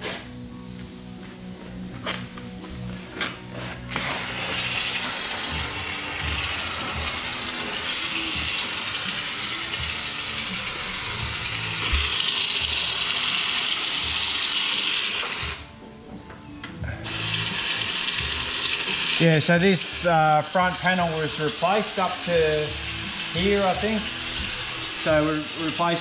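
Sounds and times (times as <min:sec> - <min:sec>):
aerosol can spraying hiss: 0:04.0 - 0:15.6, 0:17.0 - 0:26.0.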